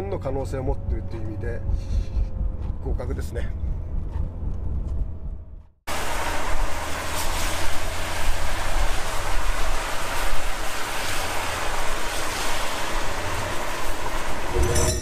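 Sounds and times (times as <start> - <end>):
low rumble: 0.0 - 5.8
tyre hiss on wet road: 5.9 - 14.7.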